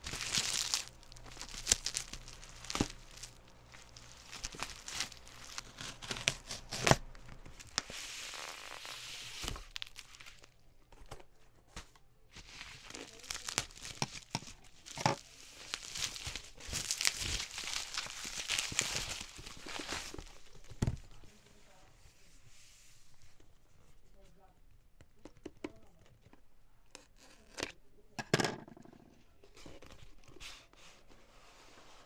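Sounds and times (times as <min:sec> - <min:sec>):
plastic tearing: 0:00.0 - 0:21.3
bubble wrap crinkling: 0:00.0 - 0:22.3
scissors snipping plastic: 0:00.1 - 0:07.9, 0:12.8 - 0:20.9.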